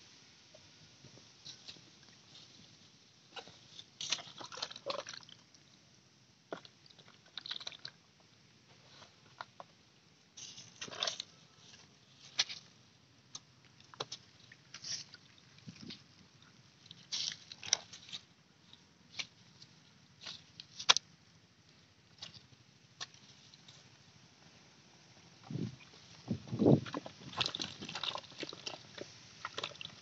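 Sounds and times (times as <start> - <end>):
straw crackling: 26.4 - 30.0
hands squelching in mud: 27.3 - 30.0.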